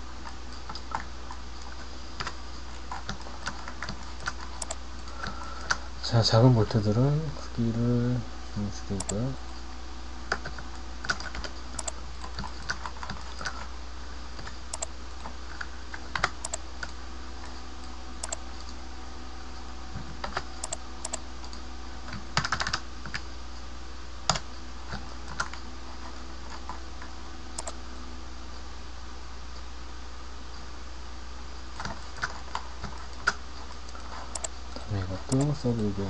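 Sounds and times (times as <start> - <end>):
steady low hum: 0.0 - 36.0
keyboard and mouse clicking: 0.2 - 5.8, 10.3 - 13.7, 14.4 - 14.9, 15.6 - 17.0, 18.2 - 18.8, 20.2 - 23.2, 27.6 - 27.8, 31.8 - 35.6.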